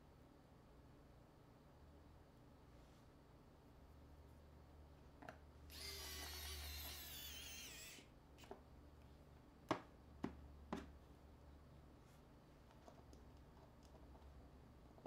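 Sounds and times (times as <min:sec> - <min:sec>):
small tool whirring: 0:05.7 - 0:08.1.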